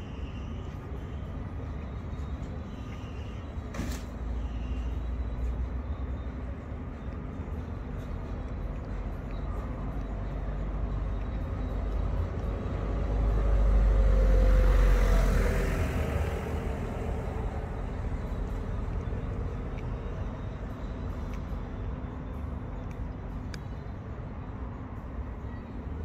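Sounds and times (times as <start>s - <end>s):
traffic rumble: 0.0s - 26.0s
vehicle passing by: 12.0s - 19.4s.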